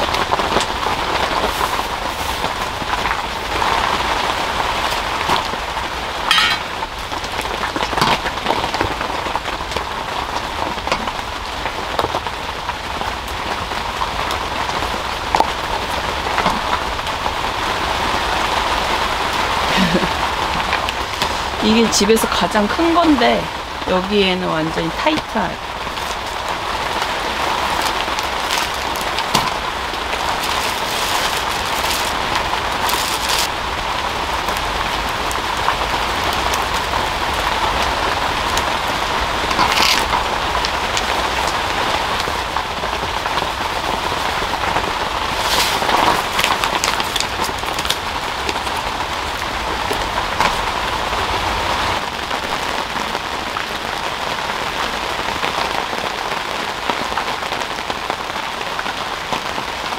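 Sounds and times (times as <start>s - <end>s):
heavy rain on fabric roof: 0.0s - 59.9s
paper rustling: 1.3s - 2.8s, 27.7s - 33.5s, 39.6s - 40.2s, 45.3s - 48.0s.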